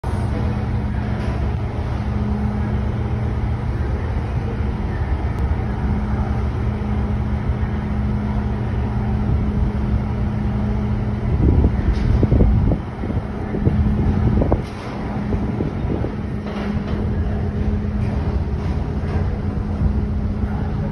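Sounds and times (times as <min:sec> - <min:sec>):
low machinery hum: 0:00.0 - 0:20.9
wind buffeting microphone: 0:08.6 - 0:20.9.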